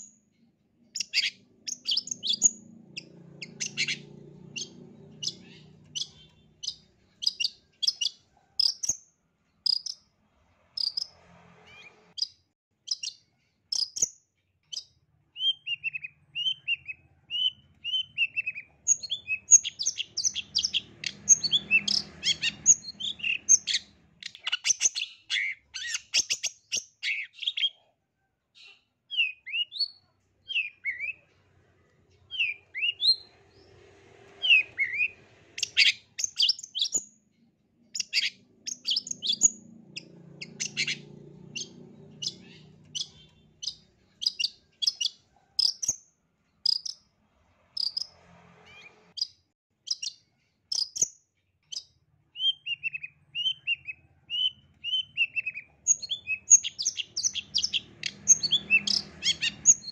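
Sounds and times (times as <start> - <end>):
shrike singing: 1.0 - 8.8.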